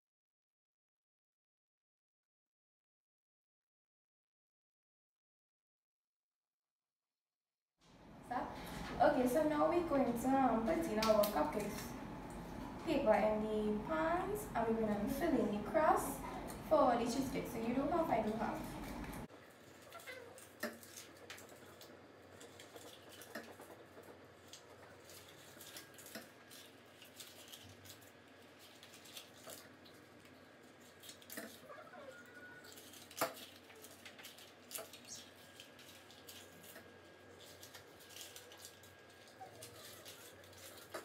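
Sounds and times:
paper liners rustling: 17.7s - 41.0s.

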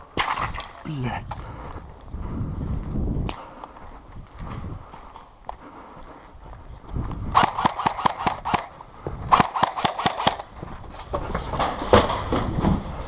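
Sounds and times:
quick footsteps on gravel: 1.2s - 7.4s, 10.4s - 13.0s.

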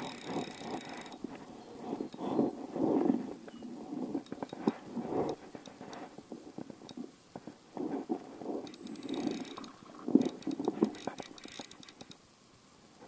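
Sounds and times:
small clicks: 0.0s - 1.4s, 4.2s - 12.3s.

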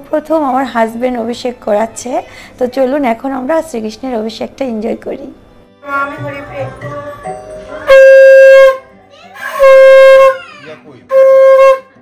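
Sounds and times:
conch shell blown: 7.8s - 10.4s, 11.1s - 12.0s.

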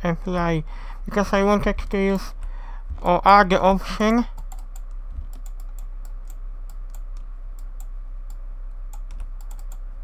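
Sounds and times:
steady low hum: 0.0s - 10.0s
keyboard clicks: 4.0s - 9.8s
computer mouse clicks: 4.0s - 9.9s.

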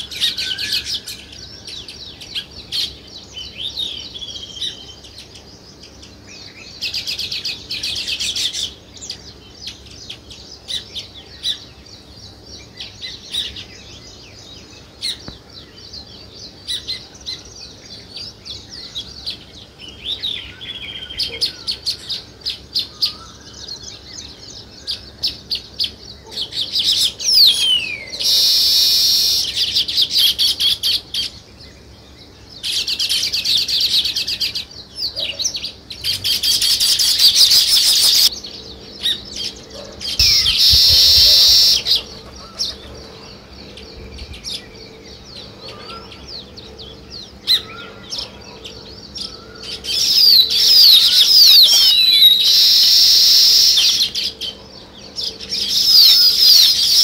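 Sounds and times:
bird chirping and chattering: 24.0s - 54.5s
buzzy wheezing bird call: 27.2s - 30.9s, 36.2s - 38.3s, 39.9s - 43.5s, 47.5s - 54.2s.

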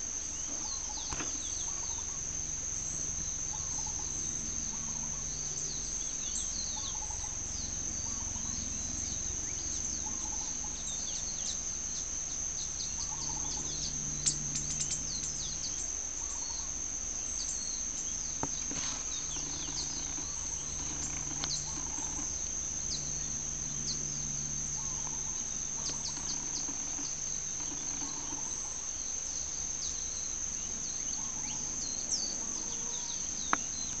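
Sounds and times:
insect trill: 0.0s - 34.0s
sharp ticks: 18.4s - 22.3s, 25.8s - 28.5s.

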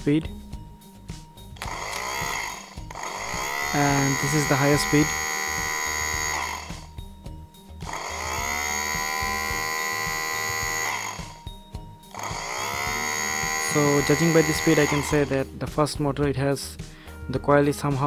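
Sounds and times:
electric motor whine: 1.6s - 7.1s, 7.7s - 15.4s.

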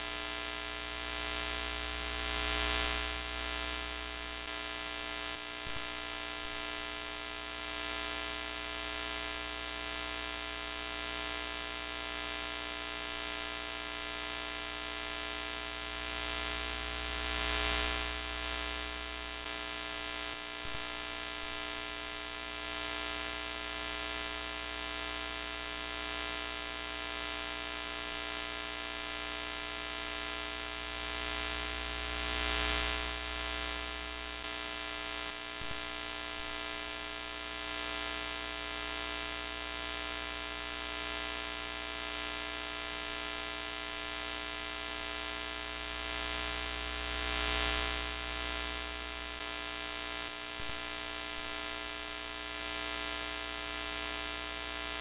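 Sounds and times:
electrical hum and buzz: 0.0s - 55.0s
static hiss: 30.3s - 36.8s, 45.9s - 51.7s.

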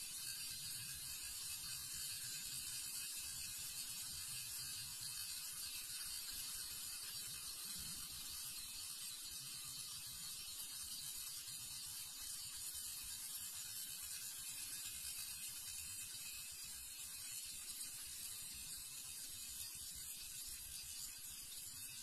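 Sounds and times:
fidget spinner whirring: 0.0s - 22.0s.

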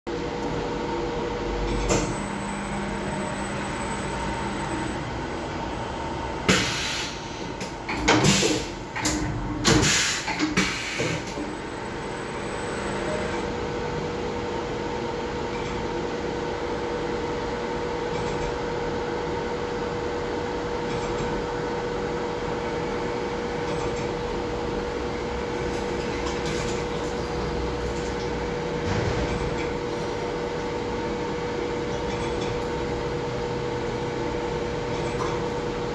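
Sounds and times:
machine spindle hum: 0.1s - 6.5s
loud clunks and rattles: 28.8s - 29.8s.

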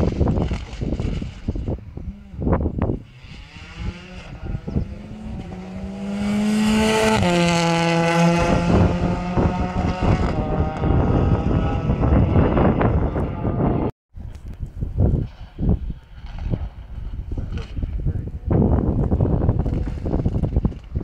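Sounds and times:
rally car engine passing: 2.2s - 13.9s.

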